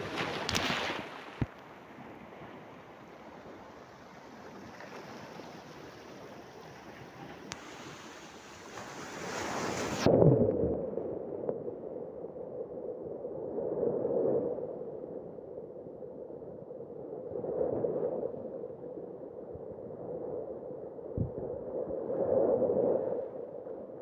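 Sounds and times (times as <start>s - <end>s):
waves washing over rocks: 0.0s - 10.1s.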